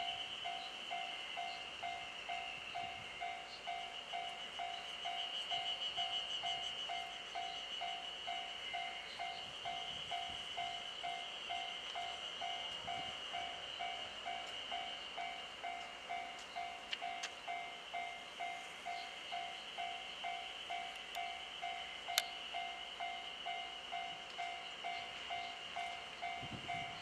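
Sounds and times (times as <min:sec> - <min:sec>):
electronic warning beeps: 0:00.0 - 0:27.0.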